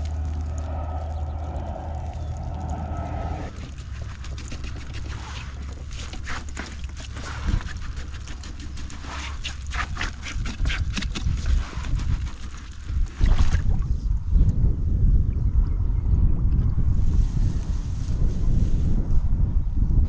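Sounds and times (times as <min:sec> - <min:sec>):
low rumble: 0:00.0 - 0:06.0.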